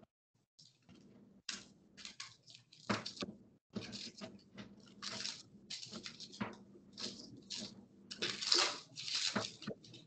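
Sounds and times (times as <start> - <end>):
onion skin peeling and crackling: 4.8 - 10.0.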